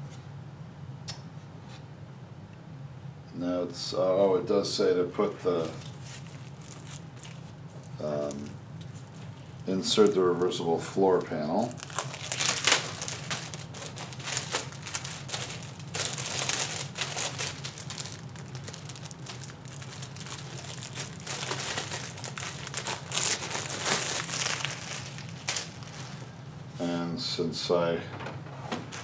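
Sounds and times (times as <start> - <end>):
plastic sleeve crinkling: 5.2 - 26.3.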